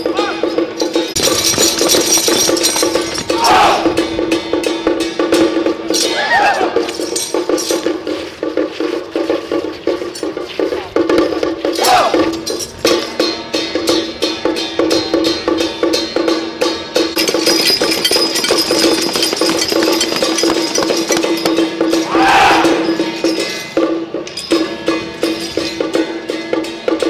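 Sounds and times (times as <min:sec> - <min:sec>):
loud shout: 0:03.3 - 0:04.0, 0:06.1 - 0:06.8, 0:11.8 - 0:12.2, 0:22.0 - 0:22.9
gong and cymbals beating rhythm: 0:03.4 - 0:06.1, 0:07.0 - 0:17.7.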